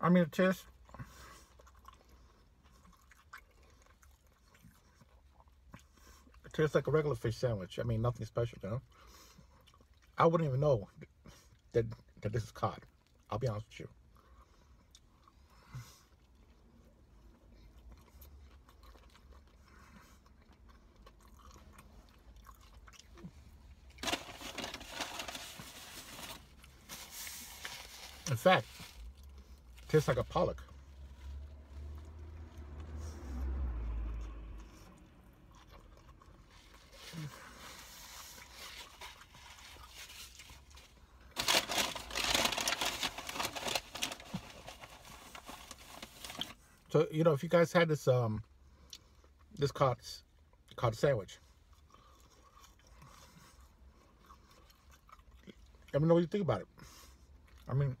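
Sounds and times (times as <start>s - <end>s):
quiet chewing: 0.7s - 6.5s, 8.8s - 10.2s, 14.0s - 24.0s, 34.2s - 41.2s, 51.4s - 56.0s
paper rustling: 24.0s - 29.1s, 41.4s - 46.6s.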